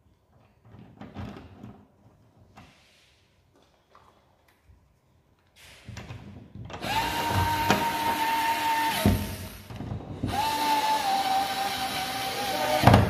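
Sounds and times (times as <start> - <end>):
electric screwdriver motor whine: 6.8 - 9.3, 10.3 - 13.0.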